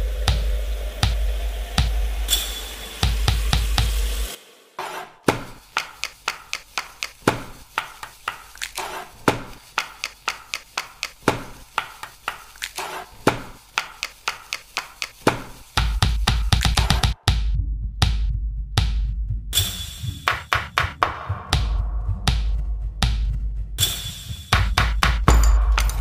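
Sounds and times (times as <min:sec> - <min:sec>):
background music with a beat: 0:00.0 - 0:04.4, 0:05.3 - 0:26.0
hands slapping raw chicken: 0:05.3 - 0:17.0.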